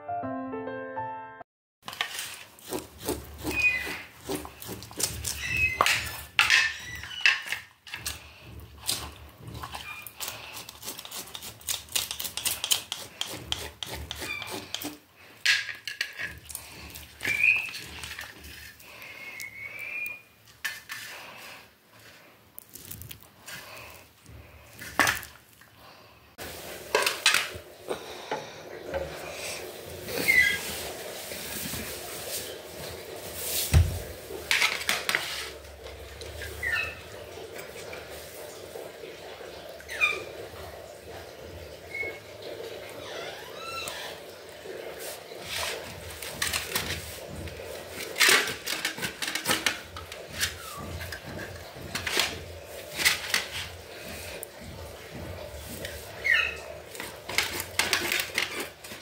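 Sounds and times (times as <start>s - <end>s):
knife scraping fish scales: 1.9s - 15.0s.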